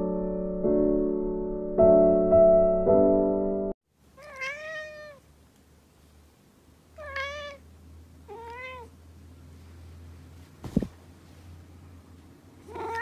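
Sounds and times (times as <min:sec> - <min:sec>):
piano music: 0:00.0 - 0:03.8
cat meowing: 0:04.2 - 0:05.2, 0:07.0 - 0:07.6, 0:08.2 - 0:08.9, 0:12.6 - 0:13.0.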